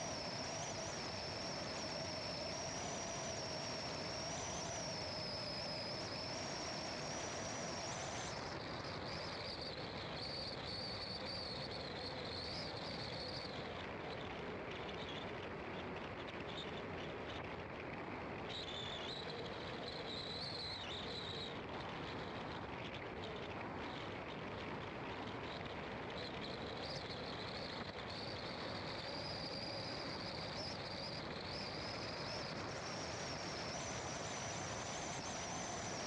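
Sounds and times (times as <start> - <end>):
high-pitched whine: 0.0 - 14.2, 25.4 - 36.0.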